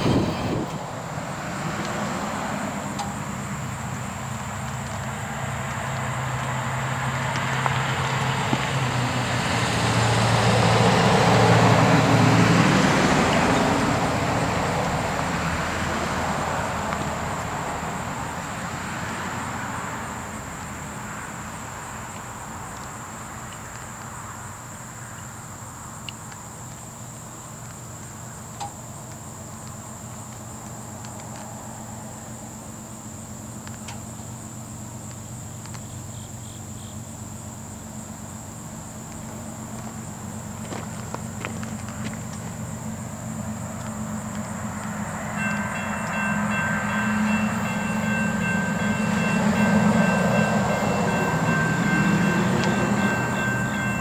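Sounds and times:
freight train rumbling past: 0.0 - 22.6, 38.6 - 54.0
crickets droning: 0.0 - 54.0.

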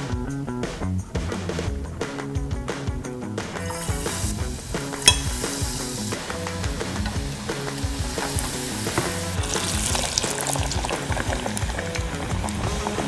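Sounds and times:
food sizzling in hot oil: 3.6 - 13.0
sharp click: 5.0 - 5.4.

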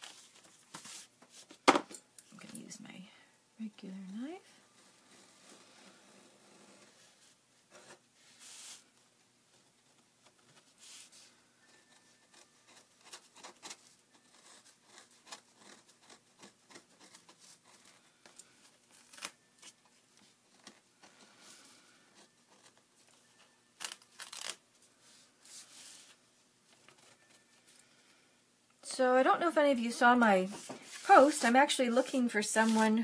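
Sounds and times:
paper tearing: 23.8 - 24.6
knife scraping paper: 30.8 - 33.0.

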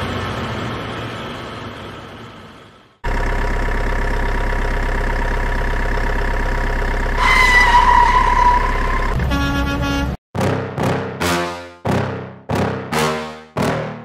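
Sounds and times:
diesel engine idling with whine: 0.0 - 10.0
truck engine: 0.0 - 13.9
truck horn blast: 7.2 - 10.2.

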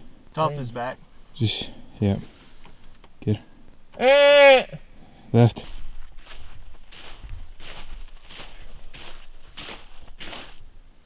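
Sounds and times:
footsteps crunching in snow: 5.4 - 10.8.

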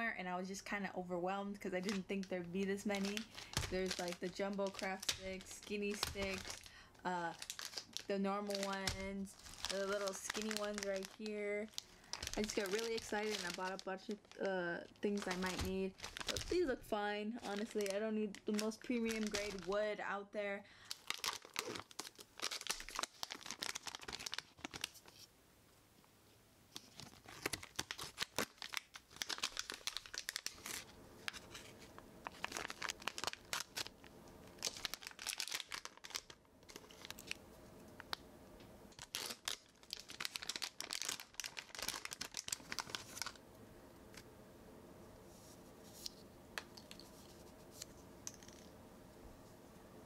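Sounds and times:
plastic packaging crinkling: 1.5 - 19.9, 20.8 - 25.3, 26.7 - 37.4, 38.9 - 43.4.

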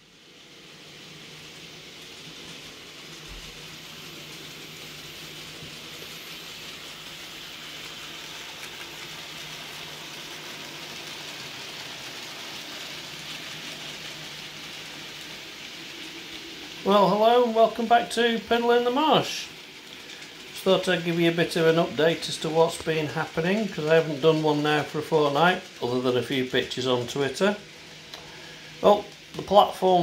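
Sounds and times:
small motor hum: 0.0 - 16.8
wheels hissing on rail: 0.0 - 30.0.

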